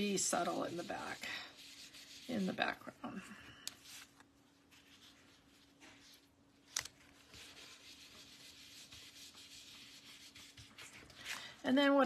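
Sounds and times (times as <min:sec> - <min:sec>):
foam dauber rubbing on cardstock: 0:00.0 - 0:02.8.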